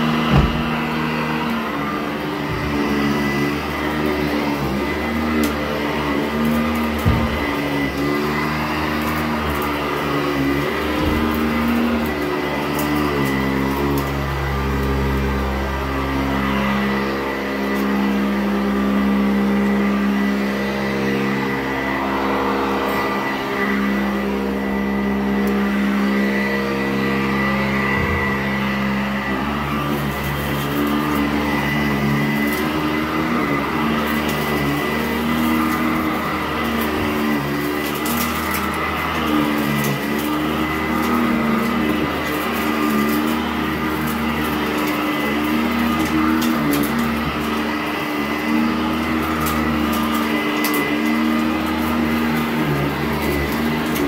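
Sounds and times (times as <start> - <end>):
vacuum cleaner running: 0.0 - 54.0
grit crackling through fan: 29.8 - 54.0.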